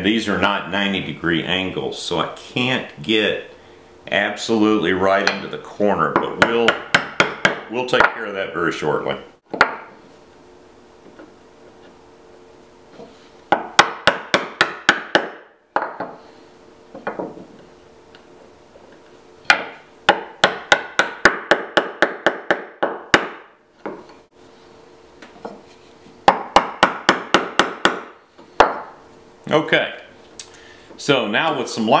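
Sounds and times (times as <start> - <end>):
mallet striking chisel in wood: 6.2 - 8.2, 9.5 - 9.9, 13.5 - 16.2, 19.5 - 24.1, 26.2 - 29.0.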